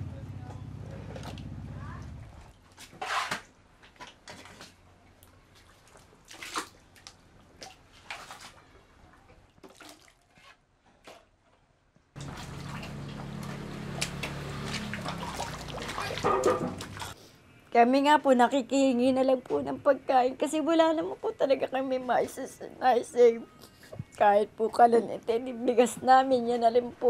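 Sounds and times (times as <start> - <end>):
mud scraping and splashing: 5.5 - 8.7, 12.2 - 17.2
low machine hum: 12.2 - 17.2.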